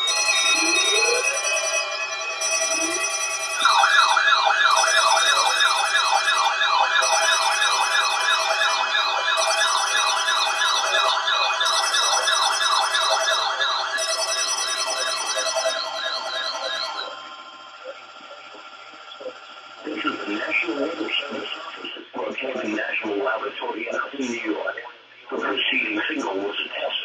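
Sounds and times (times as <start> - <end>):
fast warbling siren: 0.0 - 21.8
steady electronic tones: 0.0 - 22.0.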